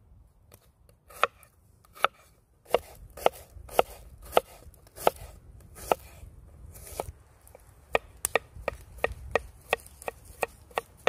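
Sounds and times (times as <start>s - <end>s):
knife chopping on wooden board: 1.1s - 6.1s, 7.9s - 11.0s.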